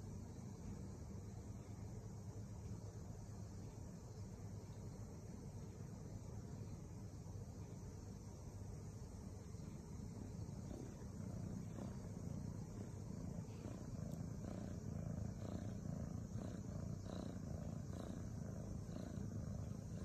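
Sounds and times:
cat purring: 0.0s - 20.0s.

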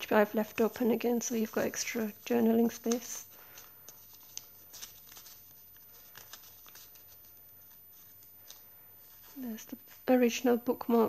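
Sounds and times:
paper pages rustling: 0.0s - 11.0s
soft page clicks: 2.6s - 7.2s, 8.4s - 8.7s.

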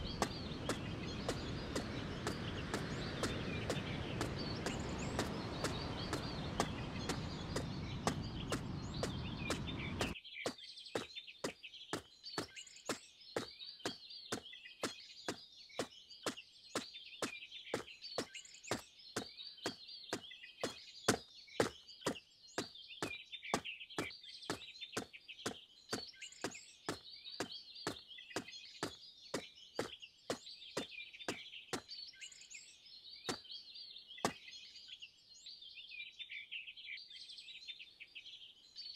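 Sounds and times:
footsteps knocking: 0.0s - 10.2s
steady rushing noise: 0.0s - 10.2s
birds chirping: 0.0s - 38.9s.

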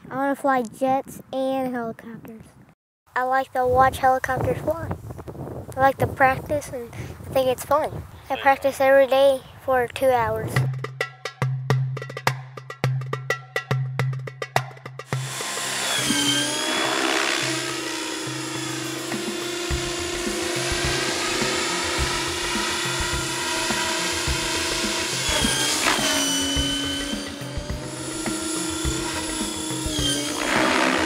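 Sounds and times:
backing music with drum beat: 10.6s - 15.4s, 18.9s - 31.0s
helicopter rotors whining: 15.1s - 31.0s.

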